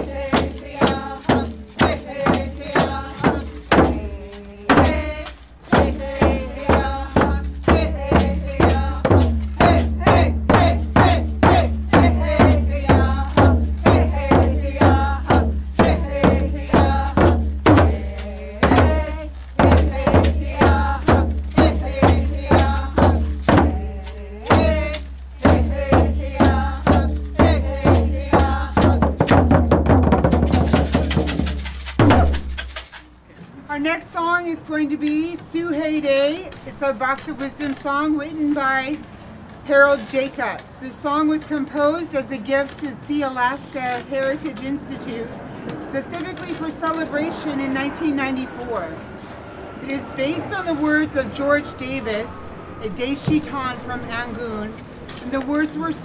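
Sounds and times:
group of voices singing: 0.0 - 29.3
frame drums beaten: 0.0 - 32.8.

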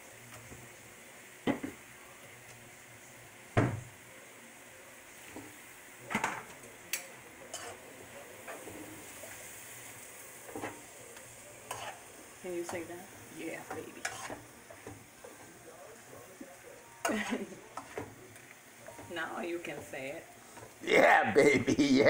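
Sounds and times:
food sizzling in a wok: 0.0 - 22.0
clunks against a pan: 3.6 - 3.9.

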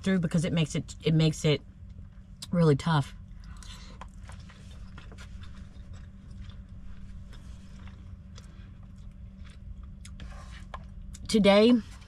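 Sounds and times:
low steady hum: 0.0 - 12.0
quiet chewing: 3.3 - 11.3.

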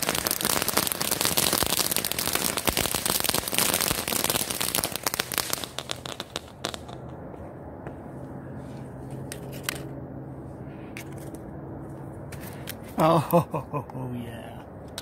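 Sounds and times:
incendiary charge crackling and hissing: 0.0 - 7.1.

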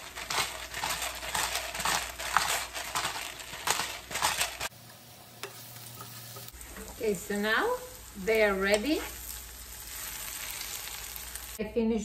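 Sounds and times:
pepper mill grinding: 0.0 - 4.8.

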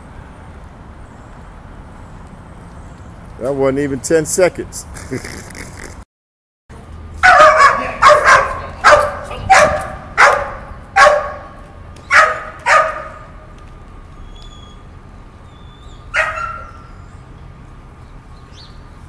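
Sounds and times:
puppy barking: 7.2 - 13.3, 16.1 - 16.9.

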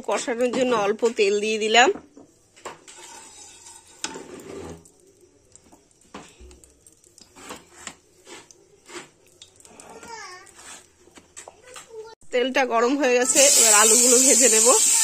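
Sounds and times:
spatula scraping a pan: 2.6 - 4.9, 7.2 - 9.2, 10.3 - 11.2.

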